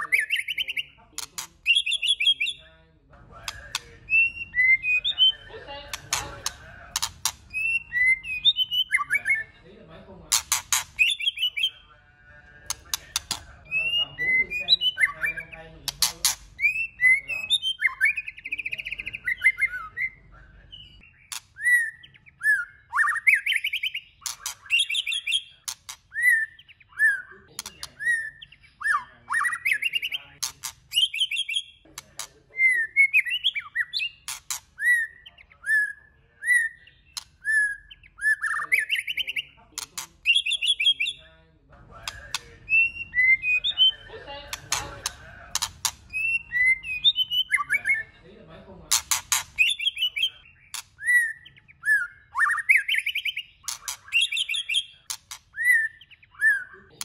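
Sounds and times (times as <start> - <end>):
bird singing whistled phrases: 0.0 - 1.0, 1.6 - 2.6, 3.7 - 5.5, 7.0 - 9.5, 10.7 - 11.9, 13.2 - 30.2, 32.5 - 39.6, 40.2 - 41.2, 42.0 - 44.1, 45.6 - 48.1, 49.6 - 56.8
sharp bird clicks: 0.0 - 2.6, 3.4 - 9.4, 10.3 - 11.7, 12.6 - 20.1, 21.0 - 32.4, 33.0 - 35.4, 36.8 - 41.2, 42.0 - 47.8, 48.9 - 57.0.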